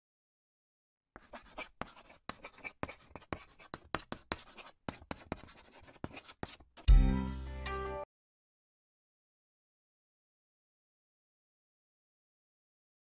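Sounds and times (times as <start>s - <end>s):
marker pen scratching: 1.2s - 6.9s.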